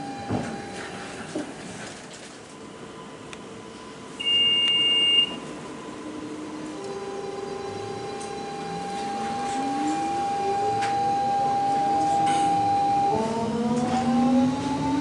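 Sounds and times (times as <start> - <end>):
electric train motor whine: 2.8 - 15.0
electronic door warning beep: 4.2 - 5.5, 6.7 - 14.1.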